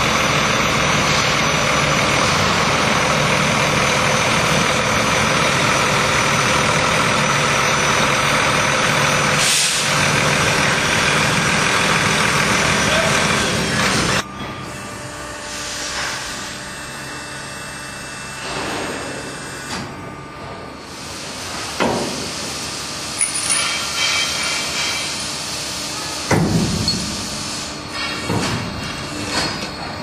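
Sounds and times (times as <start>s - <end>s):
hydraulic hissing whoosh: 9.3s - 10.0s.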